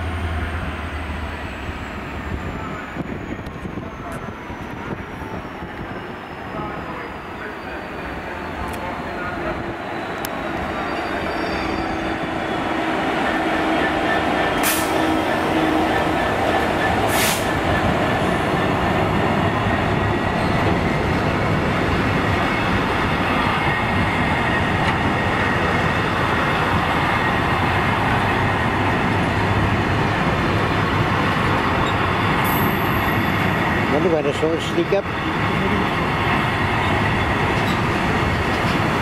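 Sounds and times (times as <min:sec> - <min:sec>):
diesel locomotive engine: 0:00.0 - 0:39.0
brief high hisses: 0:14.6 - 0:15.0, 0:17.1 - 0:17.6.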